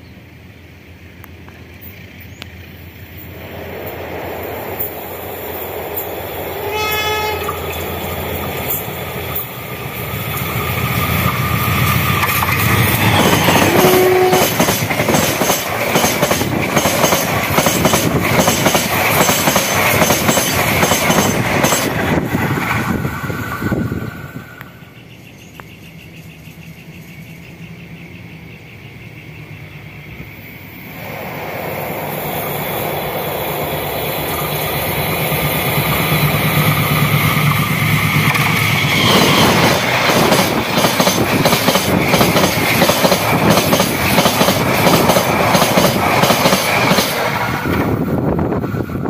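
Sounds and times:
train passing: 0:00.0 - 0:49.0
wheels clacking over rail joints: 0:05.8 - 0:23.7, 0:34.7 - 0:48.0.

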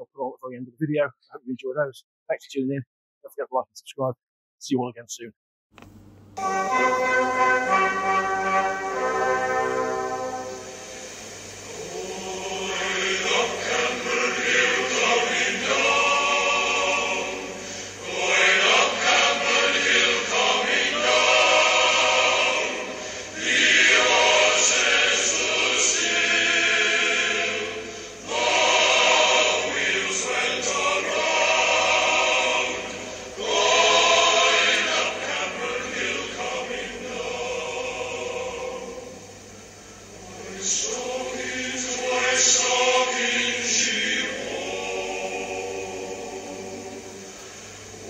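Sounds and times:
choir singing: 0:06.4 - 0:48.0.

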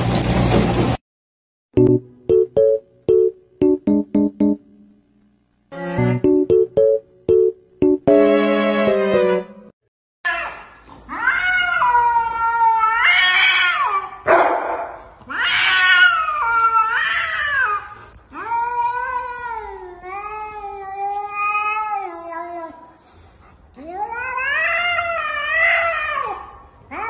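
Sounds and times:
cat yowling: 0:10.3 - 0:14.3, 0:15.3 - 0:17.9, 0:23.9 - 0:27.0.

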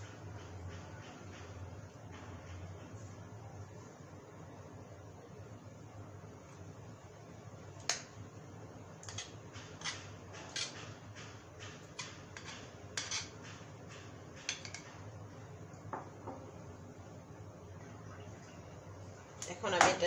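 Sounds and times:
low steady hum: 0:00.0 - 0:20.0
utensil tapping cookware: 0:14.4 - 0:15.0.

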